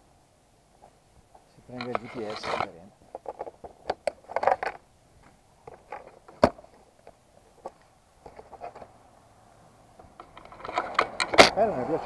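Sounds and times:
clicks and rustles of handling device: 0:00.8 - 0:08.9, 0:10.1 - 0:11.6.

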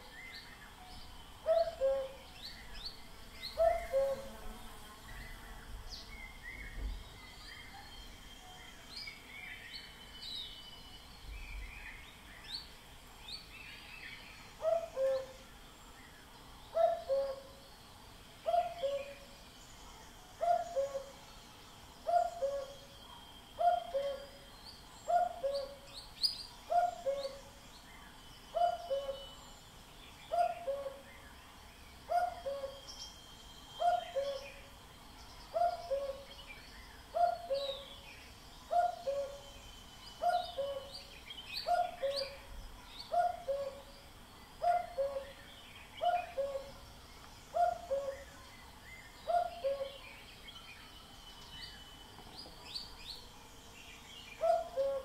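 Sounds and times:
small birds twittering: 0:00.0 - 0:55.0
cuckoo calling: 0:01.4 - 0:02.6, 0:03.5 - 0:04.3, 0:14.6 - 0:15.4, 0:16.7 - 0:17.6, 0:18.4 - 0:19.3, 0:20.4 - 0:21.2, 0:22.0 - 0:23.0, 0:23.6 - 0:25.9, 0:26.6 - 0:27.6, 0:28.4 - 0:29.4, 0:30.3 - 0:31.1, 0:32.1 - 0:32.9, 0:33.6 - 0:34.7, 0:35.5 - 0:36.4, 0:37.1 - 0:38.0, 0:38.7 - 0:43.9, 0:44.6 - 0:46.8, 0:47.5 - 0:48.4, 0:49.2 - 0:50.2, 0:54.3 - 0:55.0.

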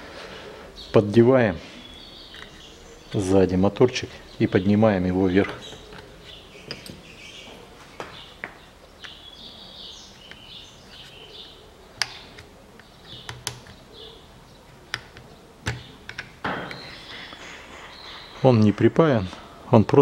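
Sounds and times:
faint bird chirps: 0:01.6 - 0:19.5
plastic clicks and taps: 0:12.0 - 0:13.8, 0:14.9 - 0:16.8.

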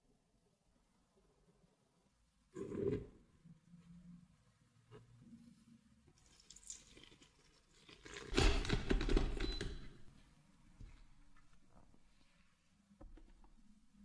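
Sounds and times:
water pouring into pot: 0:06.2 - 0:08.3.

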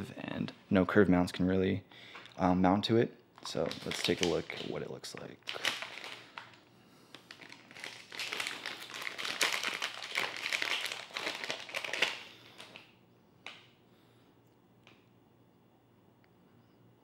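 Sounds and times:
plastic bag crinkling: 0:03.4 - 0:13.6.

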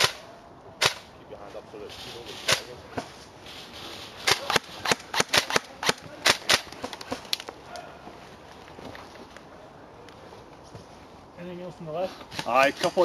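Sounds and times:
airsoft rifle shots: 0:00.0 - 0:01.1, 0:04.2 - 0:06.9.

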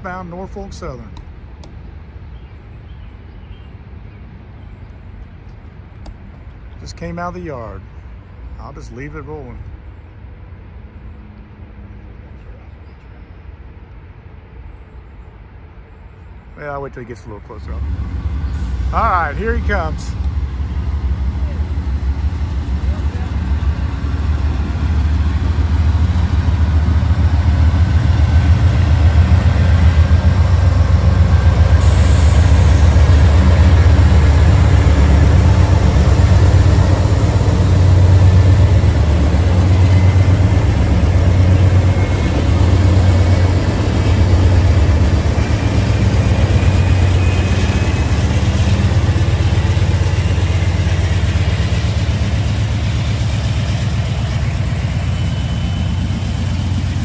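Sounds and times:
diesel locomotive engines droning: 0:00.0 - 0:57.0
train rumbling on rails: 0:00.0 - 0:57.0.

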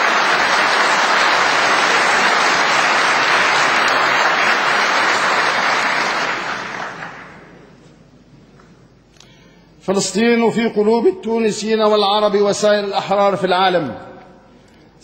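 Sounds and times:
dense applause in large hall: 0:00.0 - 0:07.8.

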